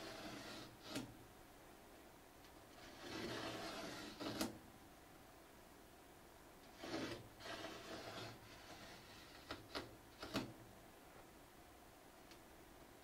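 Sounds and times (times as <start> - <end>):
razor blade scraping plastic sheet: 0.0 - 1.1, 2.8 - 4.6, 6.7 - 10.5.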